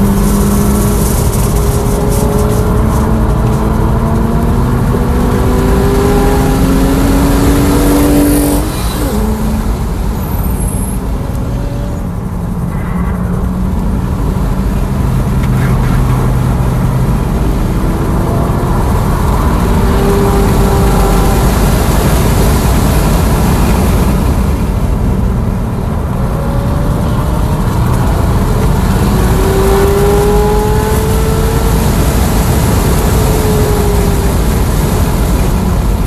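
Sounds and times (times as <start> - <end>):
road and wind noise: 0.0 - 36.0.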